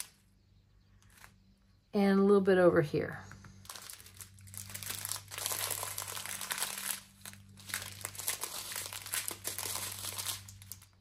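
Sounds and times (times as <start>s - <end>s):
plastic crinkling: 3.6s - 11.0s.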